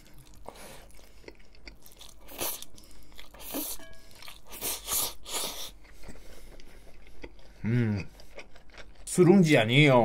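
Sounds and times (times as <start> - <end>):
chewing with full mouth: 0.0 - 9.1
person slurping noodles: 2.2 - 3.8.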